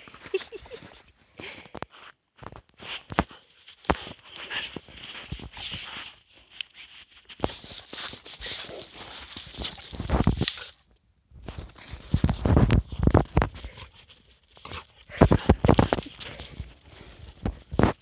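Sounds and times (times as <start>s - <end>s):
puppy digging in snow: 2.8s - 10.8s, 13.4s - 18.0s.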